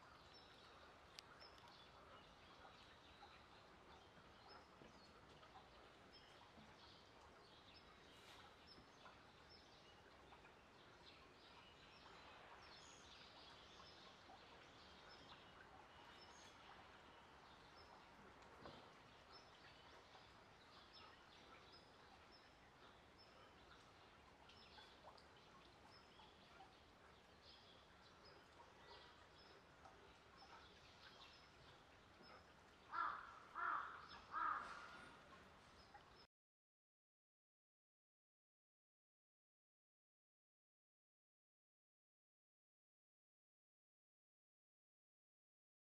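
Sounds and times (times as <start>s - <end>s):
small birds chirping: 0.0s - 36.3s
crow cawing: 32.9s - 34.9s.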